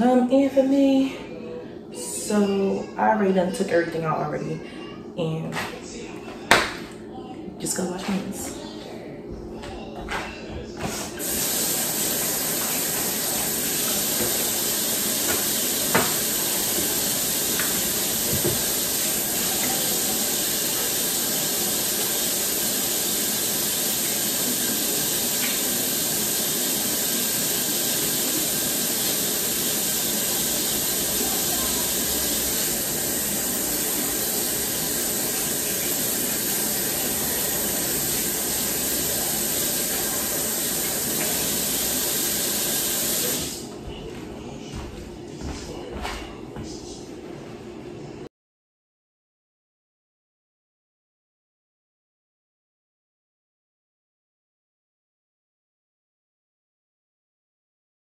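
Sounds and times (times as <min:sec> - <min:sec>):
tap water running into sink: 0:11.2 - 0:43.6.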